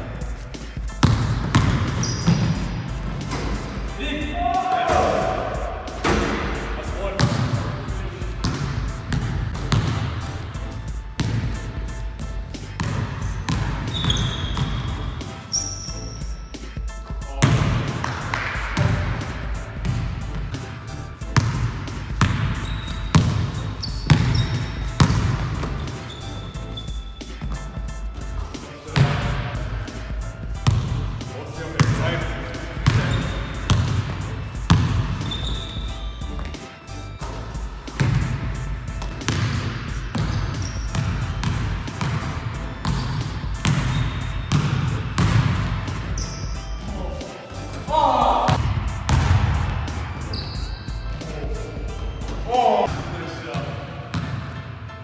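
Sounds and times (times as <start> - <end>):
basketball bouncing on wooden floor: 0.9 - 3.9, 7.2 - 7.6, 8.2 - 10.6, 11.2 - 16.4, 17.4 - 20.5, 21.2 - 29.8, 30.4 - 31.2, 32.7 - 36.6, 37.2 - 46.6, 48.5 - 49.7, 54.1 - 54.5.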